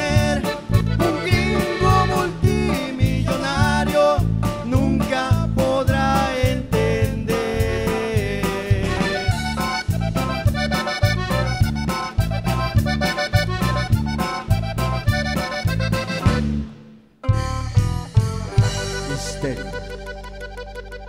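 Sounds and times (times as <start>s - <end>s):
man singing: 0.0s - 9.4s
accordion: 0.0s - 21.0s
drum kit beat: 0.0s - 21.0s
electric bass: 0.0s - 21.0s.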